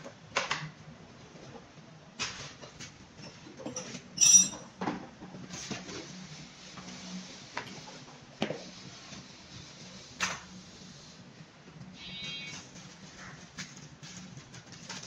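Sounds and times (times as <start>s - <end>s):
metallic clink of tools: 4.2s - 4.6s.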